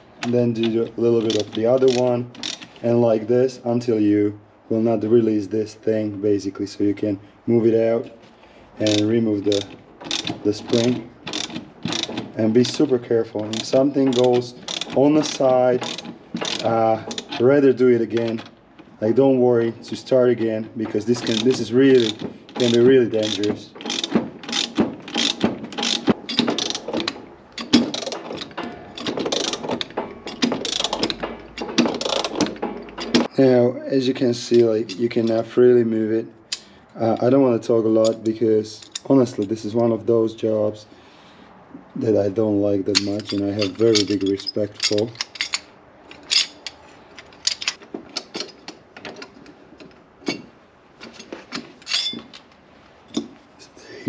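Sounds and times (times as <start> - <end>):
ratchet wrench clicking: 1.2 - 2.8, 8.8 - 12.3, 13.5 - 17.4, 21.2 - 33.3
metal tools clinking on tray: 43.0 - 48.6, 51.2 - 52.4.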